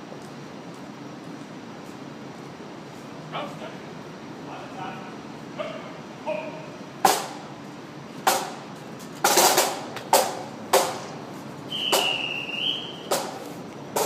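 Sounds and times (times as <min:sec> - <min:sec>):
snare and bass drum strokes: 0:07.0 - 0:07.4, 0:08.3 - 0:11.1, 0:11.8 - 0:14.0.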